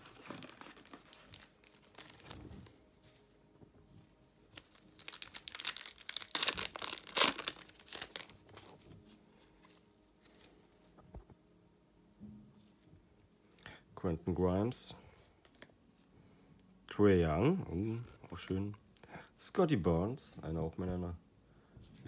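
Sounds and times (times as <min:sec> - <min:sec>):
cards rustling: 0:00.0 - 0:02.8, 0:04.6 - 0:10.7
foil wrapper crinkling: 0:00.0 - 0:02.8, 0:04.6 - 0:09.0.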